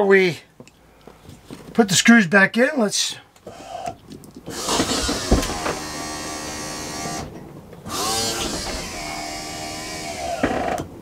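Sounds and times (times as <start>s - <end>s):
electric motor running: 4.5s - 7.3s, 7.9s - 10.7s.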